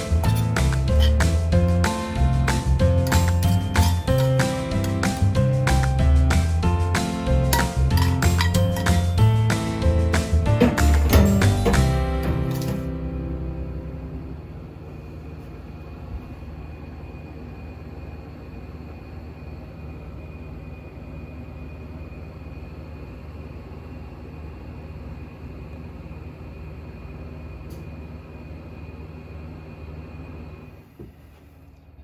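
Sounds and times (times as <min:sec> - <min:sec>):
background music: 0:00.0 - 0:14.4
high steady whine: 0:00.0 - 0:31.0
low mechanical hum: 0:00.0 - 0:32.0.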